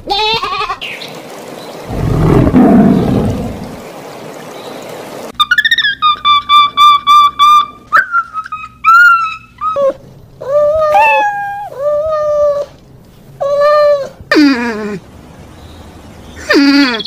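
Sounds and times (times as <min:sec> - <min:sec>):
cat meowing: 0:10.8 - 0:11.7.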